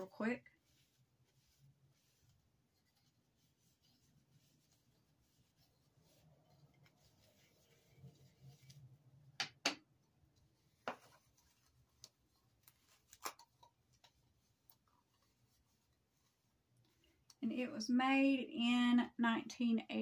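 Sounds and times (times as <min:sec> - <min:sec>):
wipe rubbing a box: 0:00.4 - 0:08.8.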